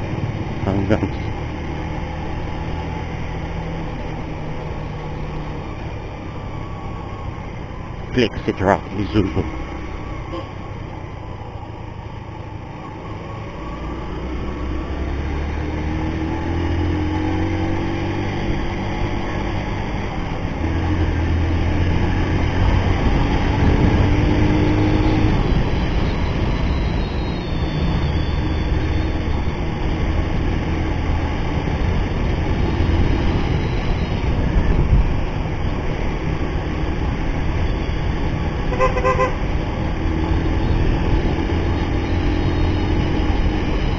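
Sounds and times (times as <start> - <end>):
wind noise on microphone: 22.6 - 24.4, 31.9 - 35.8.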